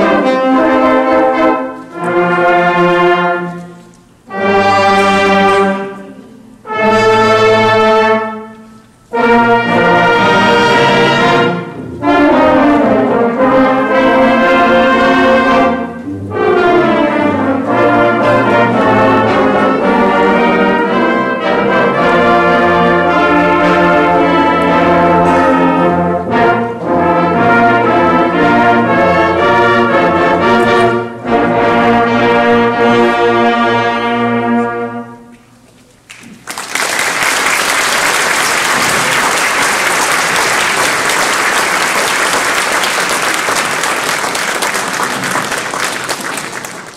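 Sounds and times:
concert band playing: 4.3s - 35.2s
audience applause: 36.1s - 46.9s.

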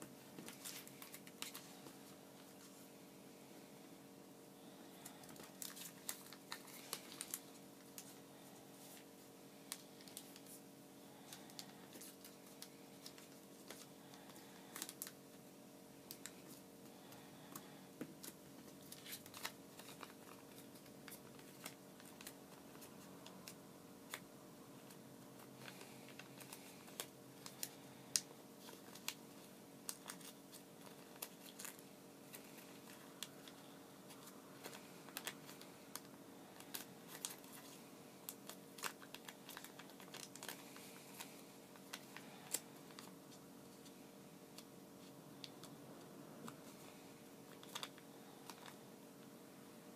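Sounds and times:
paper crackling under fingers: 0.4s - 2.8s, 5.0s - 8.2s, 16.0s - 45.8s, 46.4s - 48.8s.

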